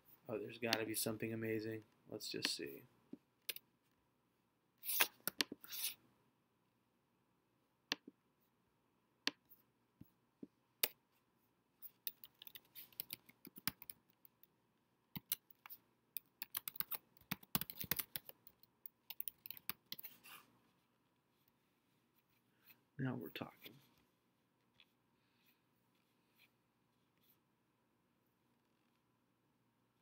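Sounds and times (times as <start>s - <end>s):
keyboard typing: 12.0s - 14.4s, 15.2s - 20.2s.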